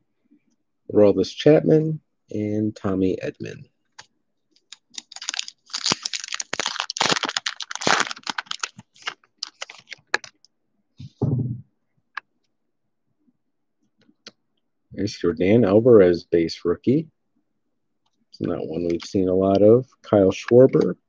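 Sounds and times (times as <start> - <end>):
foil wrapper crinkling and tearing: 4.6 - 10.4
low thud: 11.0 - 11.6.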